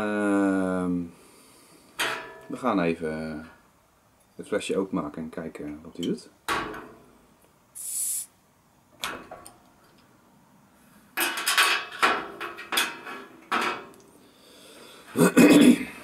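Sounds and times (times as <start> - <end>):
bottle cap opening hiss: 7.8 - 8.3.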